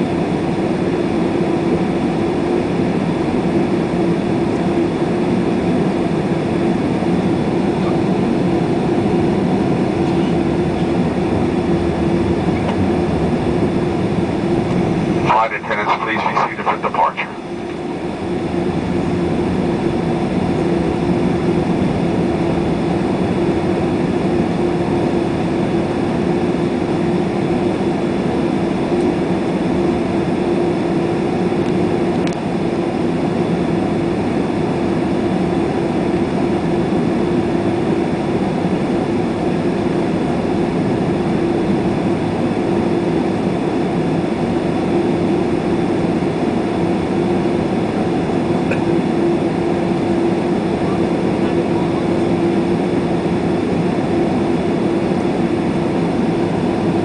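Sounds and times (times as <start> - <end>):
jet engines running at low power: 0.0 - 57.0.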